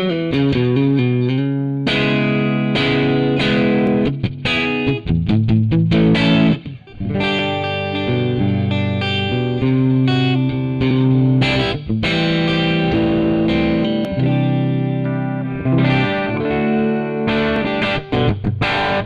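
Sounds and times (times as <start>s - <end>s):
distorted electric guitar: 0.0s - 19.0s.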